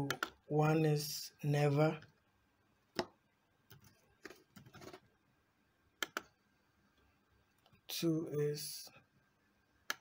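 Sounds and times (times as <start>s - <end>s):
computer keyboard and mouse clicks: 0.0s - 0.4s, 2.9s - 5.0s, 6.0s - 6.3s.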